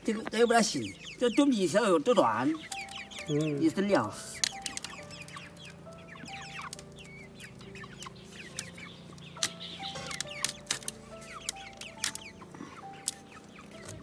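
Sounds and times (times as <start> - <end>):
chickens clucking and chirping: 0.0 - 14.0
bamboo strips clicking: 4.4 - 5.4, 9.4 - 12.3, 13.0 - 13.2.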